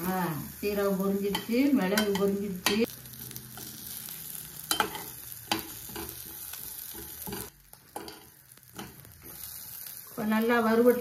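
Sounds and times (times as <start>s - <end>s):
spices sizzling in oil: 0.0s - 11.0s.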